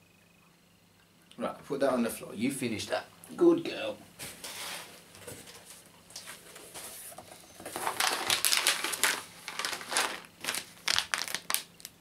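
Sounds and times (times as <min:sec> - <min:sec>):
plastic foil pouch crinkling: 0:07.7 - 0:12.0.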